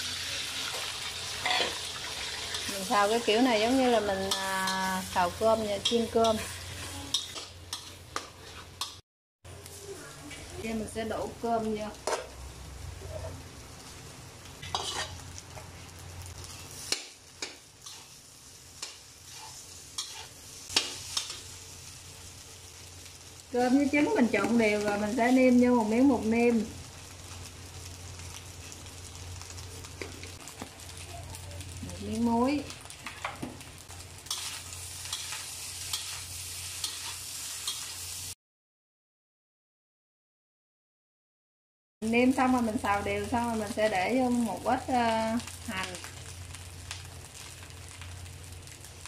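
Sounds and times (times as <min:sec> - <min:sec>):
light sizzle: 0:00.0 - 0:38.4, 0:42.0 - 0:49.0
metal spatula scraping a wok: 0:00.1 - 0:09.0, 0:12.0 - 0:12.4, 0:13.0 - 0:21.6, 0:34.2 - 0:38.2.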